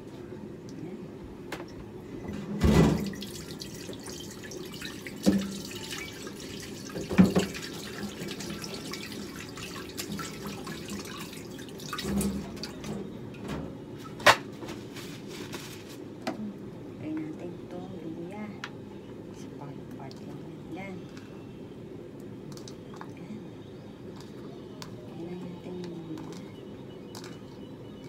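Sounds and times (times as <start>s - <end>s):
tap water running into sink: 2.7s - 13.0s.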